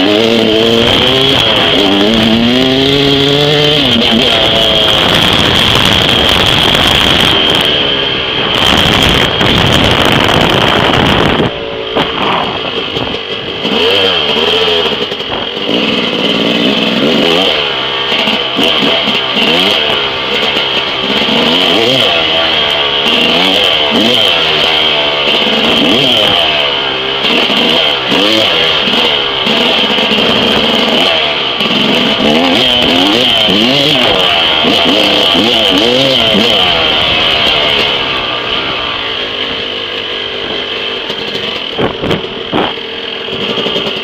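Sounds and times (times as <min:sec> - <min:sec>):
dirt bike engine revving: 0:00.0 - 0:44.0
wind rushing over microphone: 0:04.3 - 0:13.8, 0:41.8 - 0:42.8.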